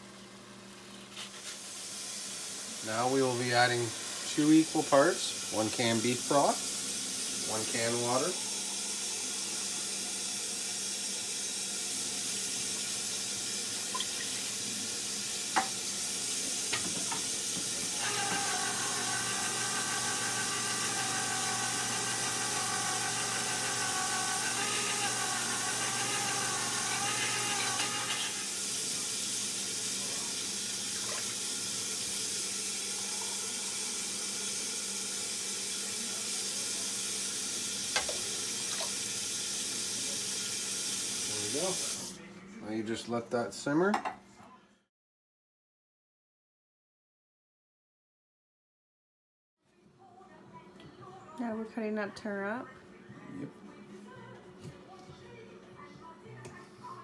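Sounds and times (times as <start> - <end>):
hiss from a hot pot: 1.3 - 13.8, 27.4 - 42.2
can knocking against a pot: 16.7 - 17.8.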